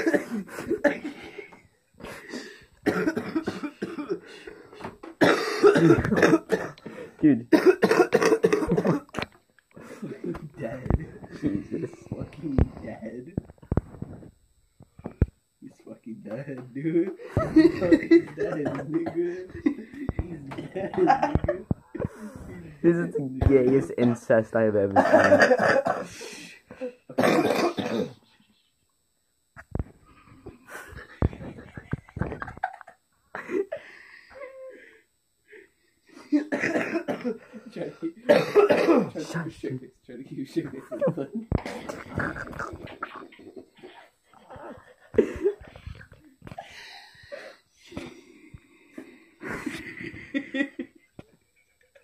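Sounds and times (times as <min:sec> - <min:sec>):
cough-like burst of breath: 0:02.1 - 0:07.0, 0:27.2 - 0:28.2
boys laughing hysterically: 0:17.2 - 0:22.2, 0:25.0 - 0:26.1, 0:30.8 - 0:33.8, 0:49.4 - 0:51.0.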